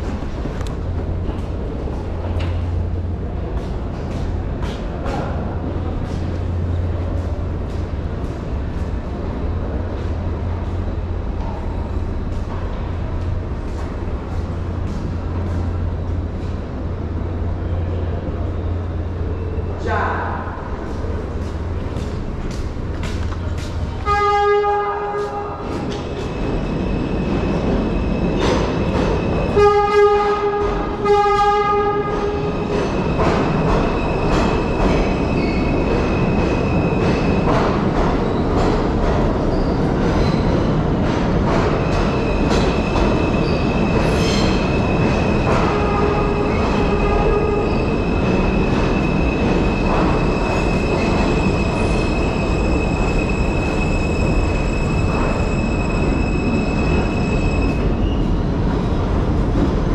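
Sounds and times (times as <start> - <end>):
subway train rumbling: 0.0 - 59.9
train horn: 24.0 - 25.7, 29.5 - 32.5, 45.6 - 47.7.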